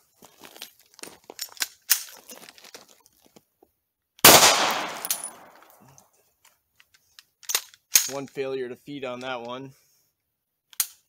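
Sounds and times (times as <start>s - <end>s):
pistol shot: 4.2s - 5.6s.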